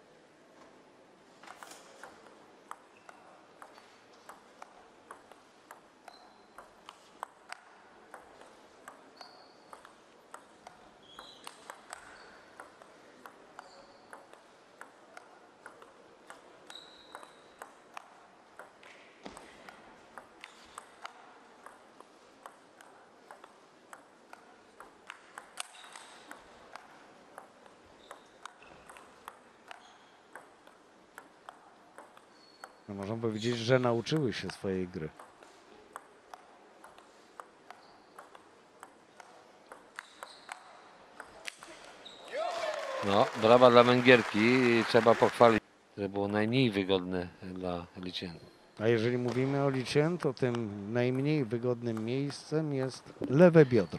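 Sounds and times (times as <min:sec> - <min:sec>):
table tennis ball clicking: 0:02.0 - 0:32.8, 0:34.1 - 0:41.7.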